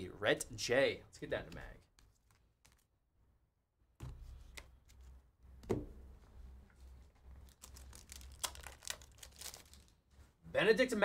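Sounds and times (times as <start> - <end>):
trading cards clicking and rustling: 7.4 - 10.0.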